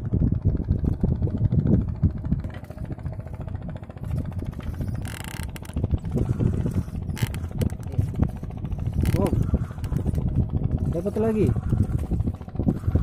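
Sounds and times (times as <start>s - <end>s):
boat engine rumbling: 0.0s - 13.0s.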